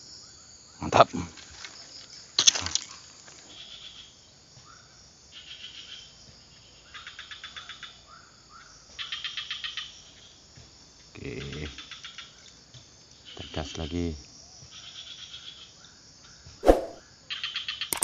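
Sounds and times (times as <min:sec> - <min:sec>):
insect chirping trills: 0:00.0 - 0:18.0
short rising calls: 0:16.6 - 0:17.0.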